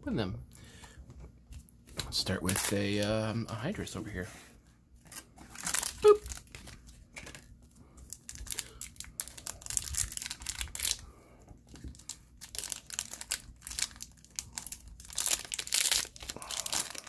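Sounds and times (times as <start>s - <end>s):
wrapper tearing and crinkling: 2.2s - 3.0s, 5.1s - 7.5s, 8.1s - 11.0s, 11.8s - 17.0s.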